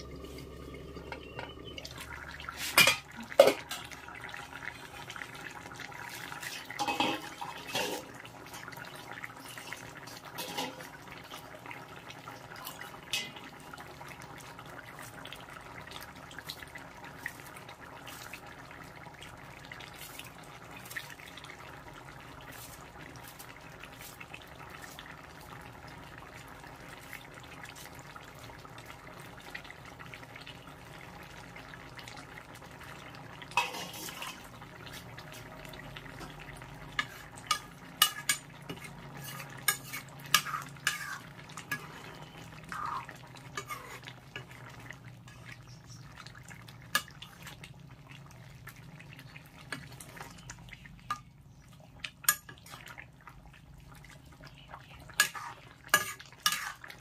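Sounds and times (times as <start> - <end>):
curry simmering: 0.0 - 57.0
metal ladle clinking on pan: 6.8 - 8.1, 10.4 - 10.8, 33.6 - 34.4, 37.0 - 41.9.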